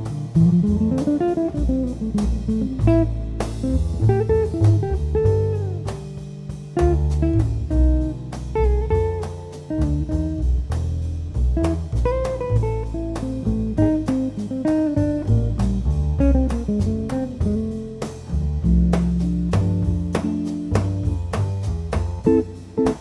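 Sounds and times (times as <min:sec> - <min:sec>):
double bass: 0:00.0 - 0:23.0
drums: 0:00.0 - 0:23.0
guitar melody: 0:00.0 - 0:23.0.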